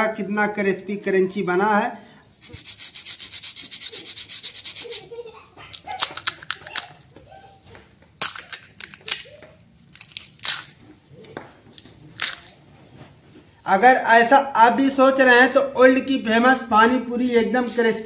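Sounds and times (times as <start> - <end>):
crisp shells crunching: 5.7 - 7.0, 8.2 - 11.0, 12.1 - 12.6
fried shells scratching together: 5.7 - 7.1, 8.2 - 10.9.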